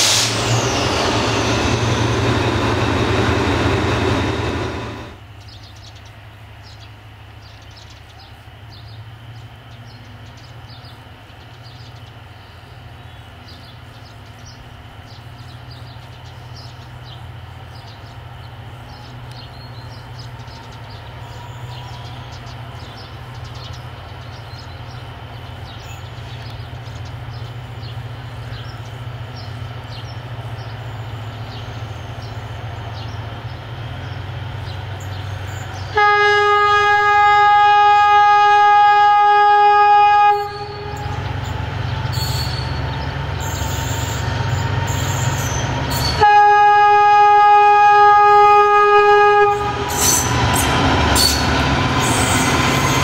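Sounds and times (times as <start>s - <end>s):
distant diesel locomotive rumbling: 0.0s - 53.0s
small birds chirping: 5.3s - 36.0s, 41.0s - 46.2s.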